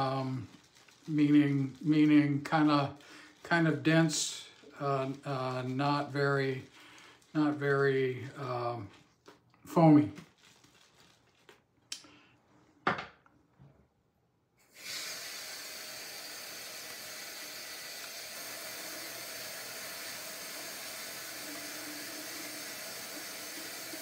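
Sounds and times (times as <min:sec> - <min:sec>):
tap water running: 0:14.7 - 0:24.0.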